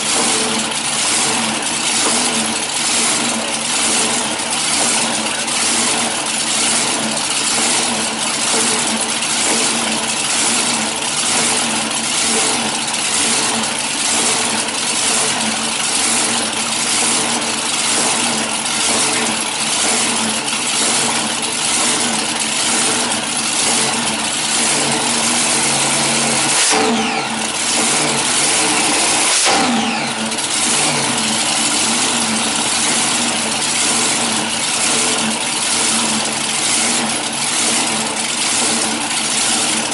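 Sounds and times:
dragster engine idling loudly: 0:00.0 - 0:39.9
engine revving: 0:00.0 - 0:39.9.

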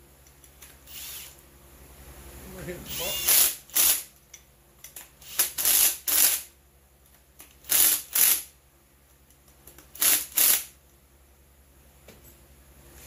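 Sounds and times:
cordless drill bursts: 0:00.9 - 0:01.4, 0:02.9 - 0:04.1, 0:05.2 - 0:06.5, 0:07.6 - 0:08.5, 0:10.0 - 0:10.7.

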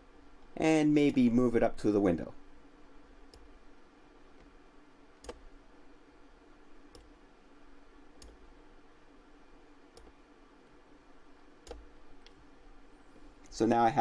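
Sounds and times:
faint steady hum: 0:00.0 - 0:14.0
computer mouse clicking: 0:05.2 - 0:05.4, 0:06.9 - 0:07.2, 0:08.2 - 0:08.4, 0:09.9 - 0:10.2, 0:11.6 - 0:12.4.

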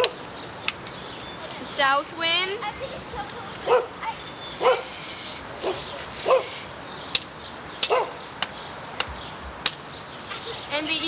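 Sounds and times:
dog barking in yips: 0:03.6 - 0:04.0, 0:04.6 - 0:04.9, 0:05.6 - 0:06.6, 0:07.9 - 0:08.2.

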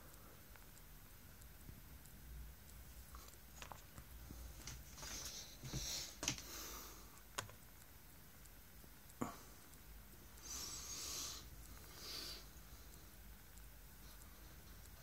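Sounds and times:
small clicks and taps: 0:00.0 - 0:06.6, 0:07.2 - 0:09.9.

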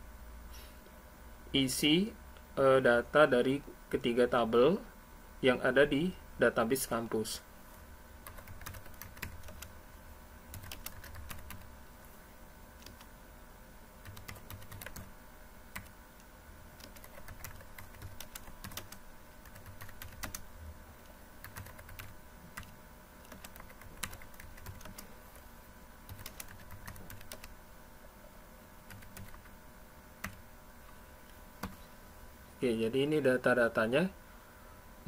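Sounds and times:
faint steady hum: 0:00.0 - 0:35.0
keyboard typing: 0:08.2 - 0:09.7, 0:10.5 - 0:11.7, 0:12.8 - 0:13.1, 0:14.0 - 0:15.1, 0:15.7 - 0:15.9, 0:16.8 - 0:20.5, 0:21.4 - 0:25.4, 0:26.1 - 0:27.6, 0:28.8 - 0:29.6, 0:30.2 - 0:30.4, 0:31.6 - 0:31.8.

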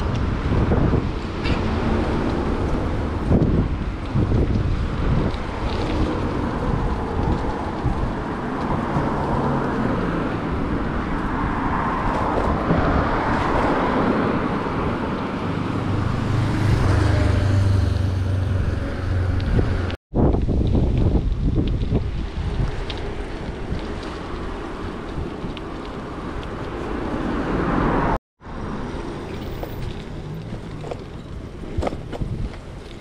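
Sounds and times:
road traffic noise: 0:00.0 - 0:33.0
vehicle engine hum: 0:21.9 - 0:33.0.

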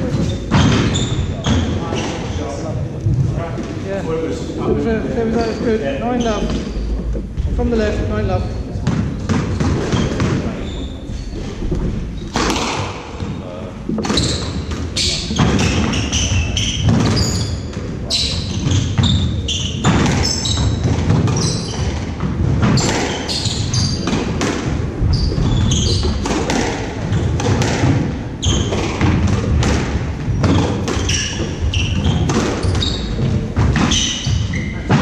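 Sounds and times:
shoes squeaking on wooden floor: 0:00.0 - 0:35.0
ball striking court walls: 0:08.8 - 0:10.7, 0:11.4 - 0:35.0
racket hitting ball: 0:12.3 - 0:13.3, 0:13.9 - 0:17.8, 0:19.8 - 0:35.0.

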